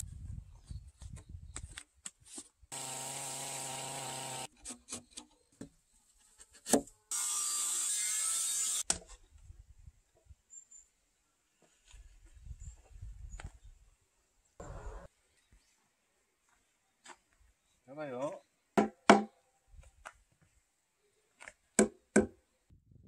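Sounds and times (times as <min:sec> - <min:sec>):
electric power tool running: 0:02.7 - 0:04.5, 0:07.1 - 0:08.8
mallet and chisel knocks on wood: 0:18.8 - 0:19.3.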